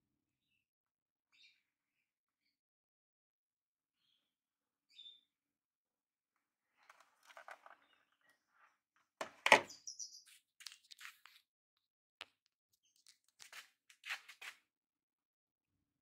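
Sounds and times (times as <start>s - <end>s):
handling rustling and clicks: 6.8s - 8.0s.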